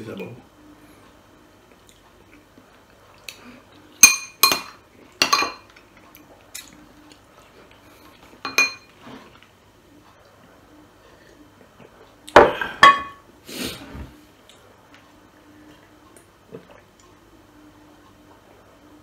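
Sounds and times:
metal spoon clinking against dishes: 0:04.0 - 0:05.7, 0:08.4 - 0:08.9.

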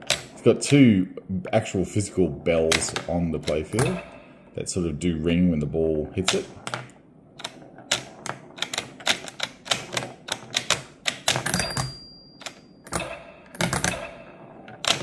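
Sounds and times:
wooden pinball flippers clacking: 0:02.4 - 0:04.2, 0:06.2 - 0:15.0.

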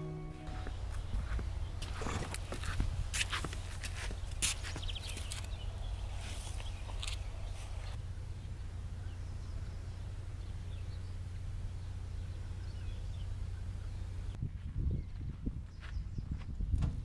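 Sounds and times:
steady low rumble: 0:07.3 - 0:15.7.

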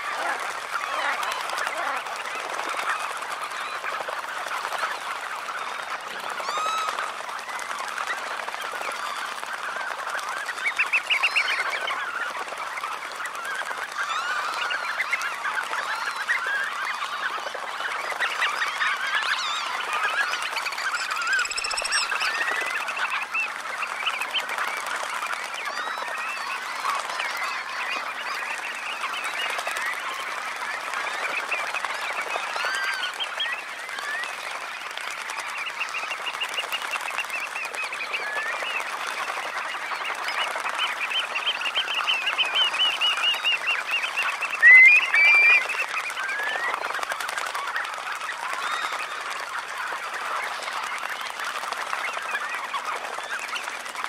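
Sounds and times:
flock of birds chattering: 0:00.0 - 0:54.0
high whistled bird call: 0:44.6 - 0:45.8.

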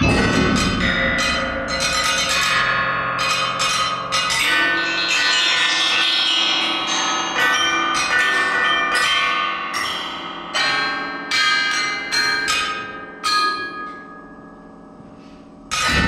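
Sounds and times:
struck metal percussion ringing: 0:00.0 - 0:14.9, 0:15.7 - 0:16.0.

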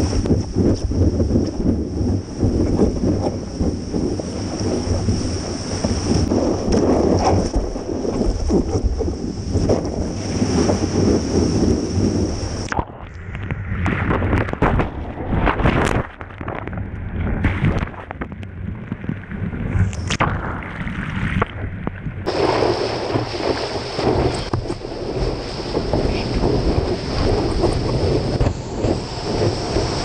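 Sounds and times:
muffled underwater rush: 0:00.0 - 0:30.0
whitewater and wind rushing: 0:00.0 - 0:30.0
sharp splashes and knocks: 0:12.6 - 0:30.0.

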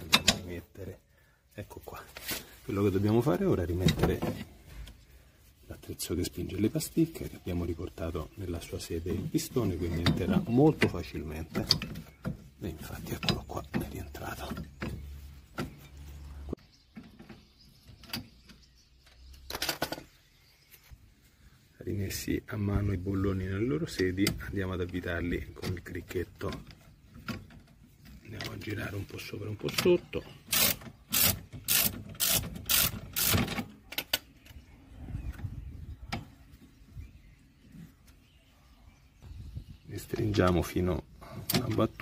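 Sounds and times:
ratchet wrench ratcheting: 0:30.5 - 0:33.4.

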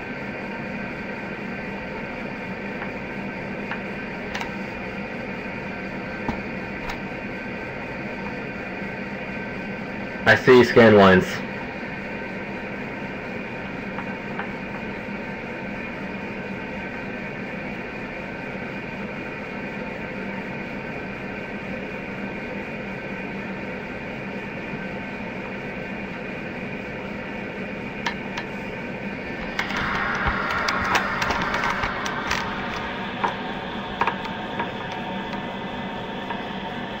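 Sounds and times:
low hum: 0:00.0 - 0:17.2, 0:26.8 - 0:37.0
static crackles and clicks: 0:02.6 - 0:04.9, 0:29.3 - 0:37.0
tv static hiss: 0:28.0 - 0:37.0.

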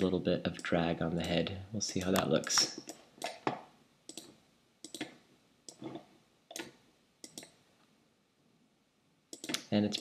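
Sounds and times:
mouse and keyboard clicks: 0:02.0 - 0:07.6, 0:09.3 - 0:10.0.

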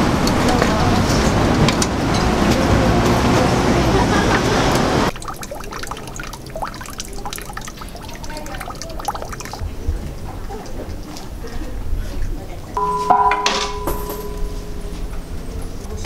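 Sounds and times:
street traffic: 0:00.0 - 0:16.0
water trickling into a basin: 0:05.1 - 0:09.7.

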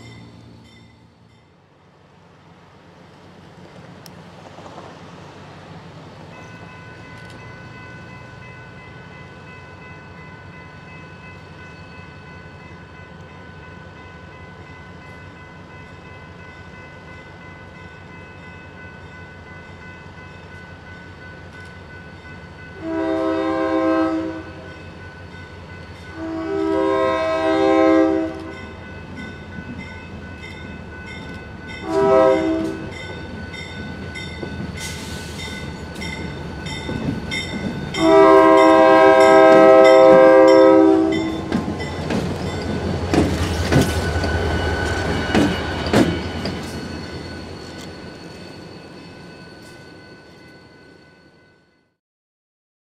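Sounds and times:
train air horn blasts: 0:22.8 - 0:24.8, 0:26.1 - 0:28.6, 0:31.8 - 0:33.0, 0:38.0 - 0:41.5
steady high tone: 0:28.8 - 0:51.7.

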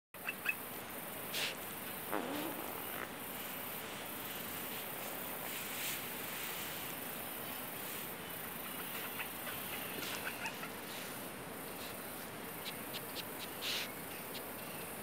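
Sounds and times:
insects chorus: 0:00.2 - 0:15.0.

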